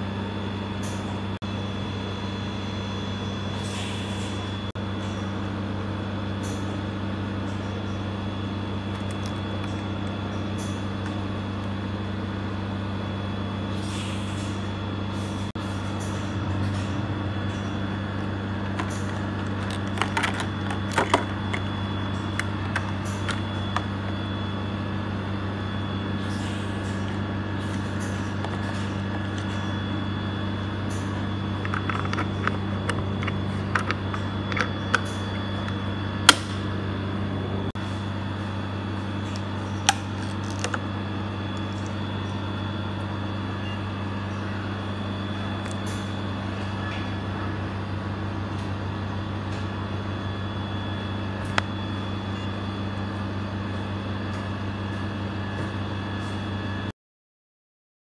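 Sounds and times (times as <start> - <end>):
low machine hum: 0.0 - 56.9
plastic packaging crinkling: 40.0 - 40.8.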